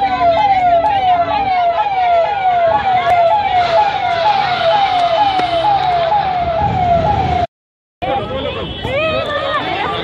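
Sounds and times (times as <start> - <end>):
police siren wailing: 0.0 - 8.3.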